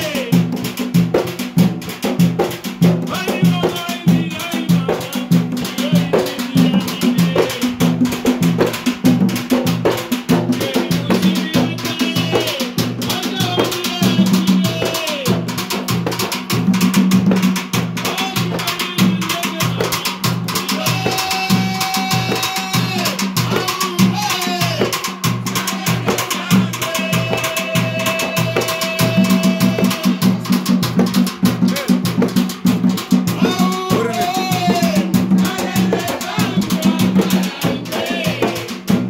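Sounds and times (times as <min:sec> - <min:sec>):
barrel drums beaten in rhythm: 0:00.0 - 0:39.0
voices singing through microphones: 0:03.1 - 0:08.1, 0:18.1 - 0:30.4, 0:33.3 - 0:39.0.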